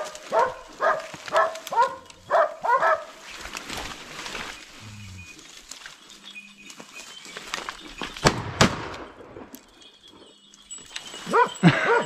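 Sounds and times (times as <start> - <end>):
shotgun blasts: 8.2 - 9.3.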